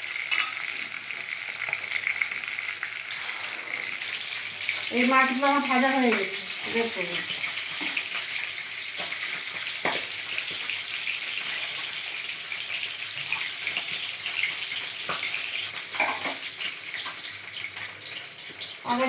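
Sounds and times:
fish sizzling in hot oil: 0.0s - 19.0s
steel spatula tapping and scraping pan: 0.3s - 0.7s, 16.0s - 16.4s.

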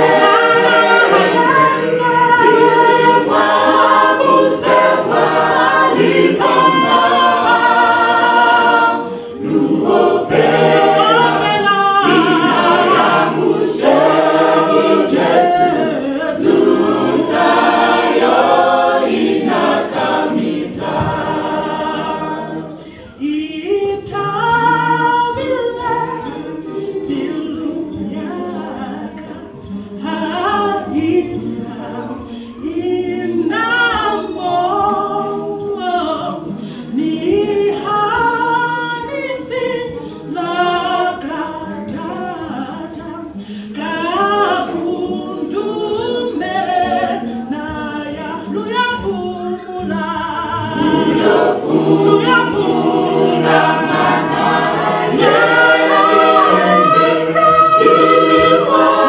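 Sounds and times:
gospel choir singing a cappella: 0.0s - 59.0s
woman singing lead into microphone: 21.0s - 54.0s.

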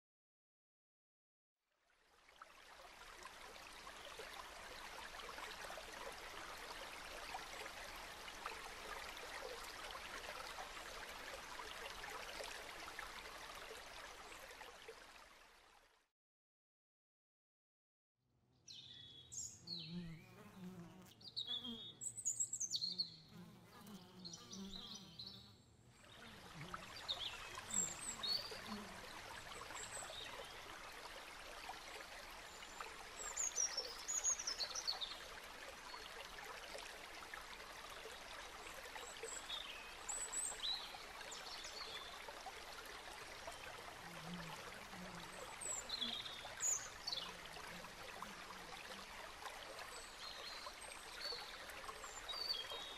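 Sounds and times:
small birds chirping: 18.7s - 25.6s
flowing water hiss: 26.0s - 52.9s.

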